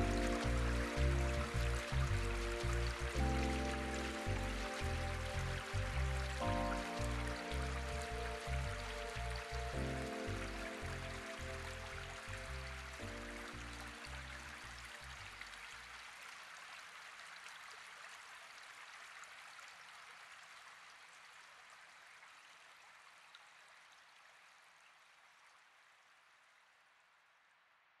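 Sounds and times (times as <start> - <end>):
instrumental music: 0.0 - 14.5
flowing water with drips: 0.0 - 26.9.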